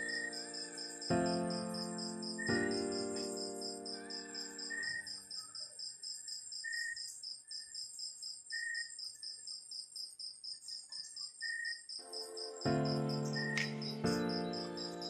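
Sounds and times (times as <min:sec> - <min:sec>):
held keyboard chord: 0:00.0 - 0:04.6, 0:12.0 - 0:15.0
crickets pulsing trill: 0:00.0 - 0:15.0
short lower cricket notes: 0:12.0 - 0:15.0.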